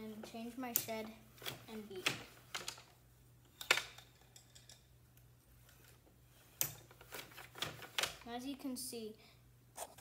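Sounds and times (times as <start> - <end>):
wooden loom clicking and clacking: 0.2 - 2.9, 6.6 - 8.2.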